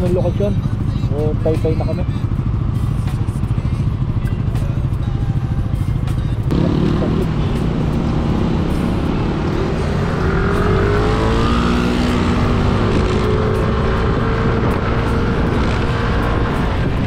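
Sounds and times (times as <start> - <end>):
wind and road noise: 0.0 - 17.0
motorcycle engine accelerating: 6.4 - 17.0.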